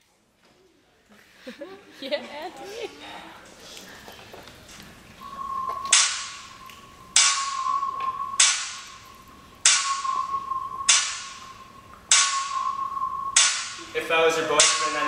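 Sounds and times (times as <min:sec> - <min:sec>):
held high synth note: 0:05.2 - 0:14.0
clap-like snare hits: 0:05.6 - 0:13.9, 0:14.6 - 0:15.0.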